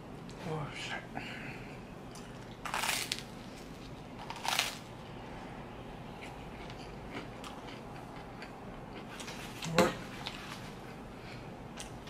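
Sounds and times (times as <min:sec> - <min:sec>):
crunchy bites into bread: 0:02.6 - 0:03.3
chewing with mouth clicks: 0:06.2 - 0:10.4.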